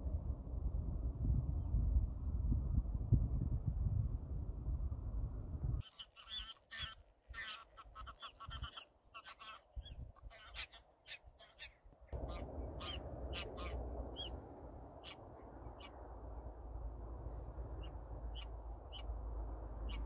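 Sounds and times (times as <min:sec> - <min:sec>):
steady low rumble: 0:00.0 - 0:05.8, 0:12.1 - 0:20.0
harsh bird calls: 0:05.8 - 0:16.2, 0:17.7 - 0:19.2, 0:19.8 - 0:20.0.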